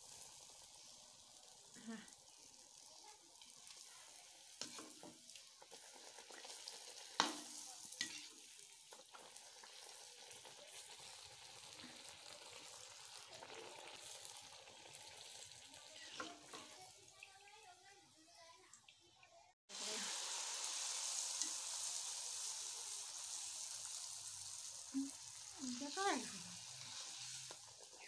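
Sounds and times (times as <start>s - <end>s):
oil sizzling: 0.0s - 28.0s
metal spoon scraping pan: 8.0s - 8.4s, 16.0s - 16.8s.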